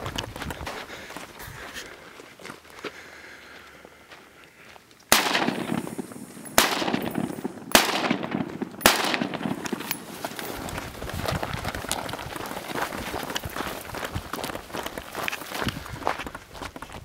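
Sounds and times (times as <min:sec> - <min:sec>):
gunshots: 0:05.1 - 0:10.0.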